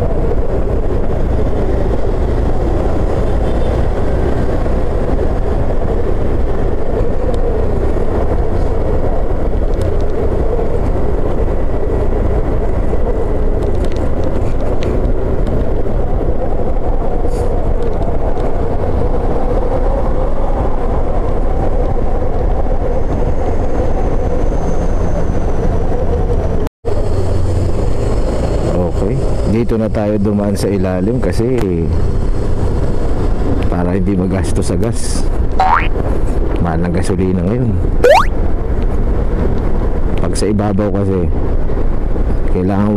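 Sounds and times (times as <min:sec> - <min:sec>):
wind rushing over microphone: 0:00.0 - 0:26.6.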